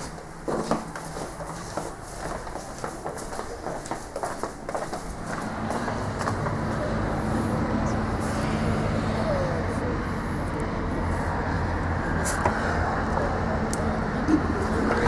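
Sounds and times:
outdoor background noise: 0.0s - 15.0s
low mechanical drone: 5.1s - 15.0s.

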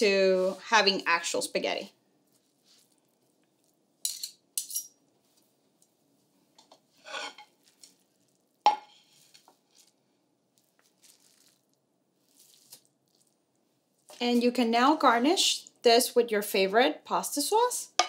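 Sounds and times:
metal clinking on plate: 4.1s - 5.0s
fork scraping squash: 7.0s - 8.0s.

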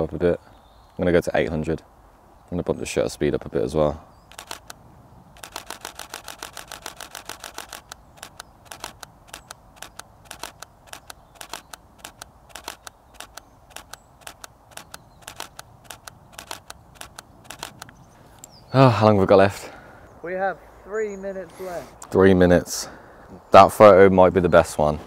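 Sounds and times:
camera shutter clicking: 4.3s - 4.8s, 5.4s - 18.0s.

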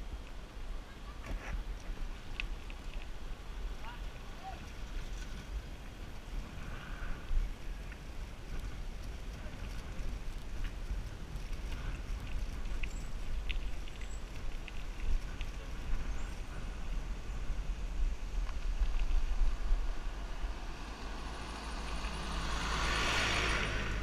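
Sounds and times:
wind rumbling on microphone: 0.0s - 24.0s
bicycle clicks and rattles: 7.3s - 16.3s.

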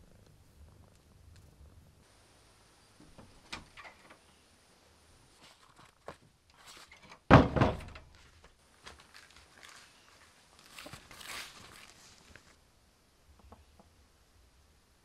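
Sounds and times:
wooden door shutting: 3.0s - 4.2s, 7.1s - 8.1s.

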